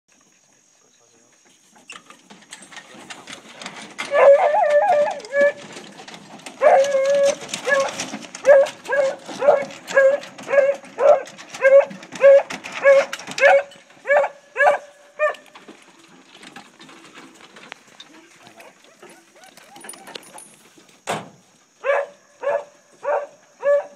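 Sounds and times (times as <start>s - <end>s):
hound baying: 4.0s - 15.6s, 18.2s - 20.5s, 21.8s - 23.9s
dog barking loudly: 6.6s - 7.0s, 7.6s - 15.4s, 21.8s - 23.9s.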